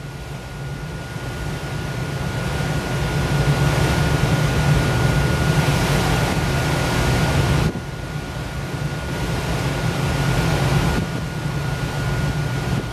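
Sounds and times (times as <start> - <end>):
ferry engine rumble: 0.0 - 12.9
thin steady whine: 0.0 - 12.9
water wash: 0.0 - 12.9
wind on microphone: 3.6 - 8.0, 9.0 - 12.9.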